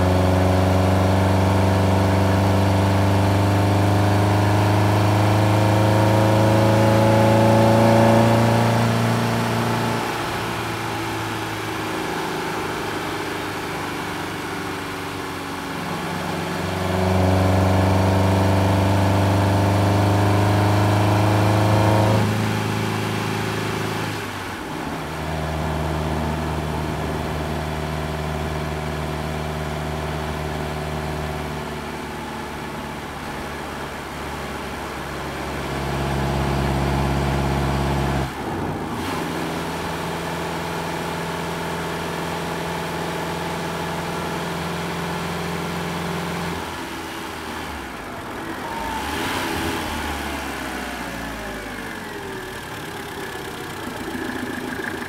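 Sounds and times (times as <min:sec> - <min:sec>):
car engine heard from cabin: 0:42.9 - 0:55.0.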